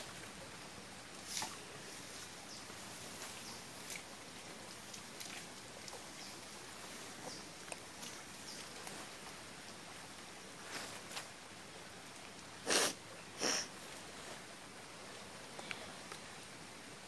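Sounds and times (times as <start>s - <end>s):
faint outdoor hiss: 0.0s - 17.0s
person sniffing: 12.6s - 13.7s.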